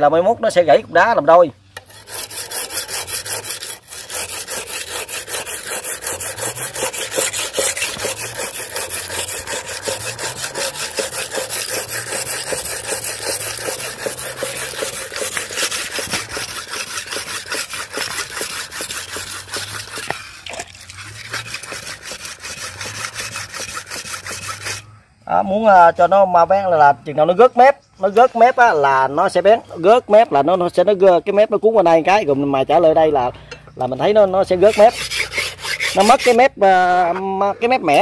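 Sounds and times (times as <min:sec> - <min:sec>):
knife scraping on sharpening stone: 0:01.8 - 0:24.9, 0:34.6 - 0:36.4.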